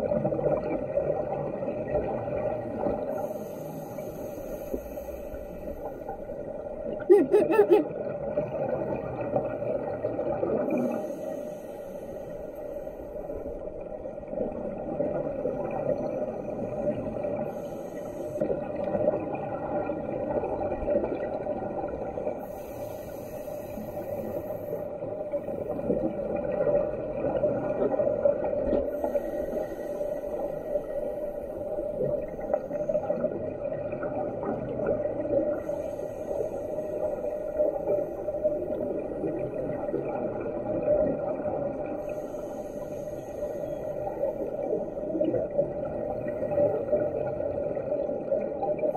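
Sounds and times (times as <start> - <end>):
underwater rumble and bubbles: 0.0 - 48.9
diver's regulator breathing hiss: 3.1 - 6.2, 10.7 - 13.5, 17.4 - 18.5, 22.4 - 25.6, 28.9 - 33.0, 35.5 - 38.6, 41.9 - 45.1.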